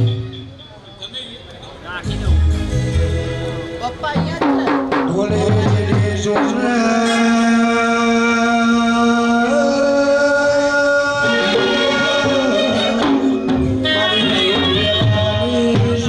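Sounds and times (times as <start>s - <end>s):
devotional folk music: 2.0s - 16.0s
man singing long held note: 5.1s - 16.0s.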